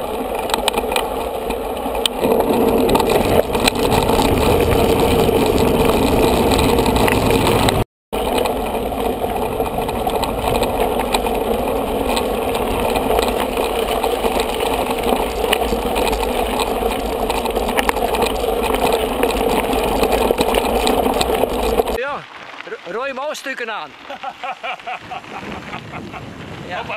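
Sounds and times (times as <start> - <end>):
small rattles and clicks: 0.0 - 22.0
bike rolling over gravel: 0.0 - 26.9.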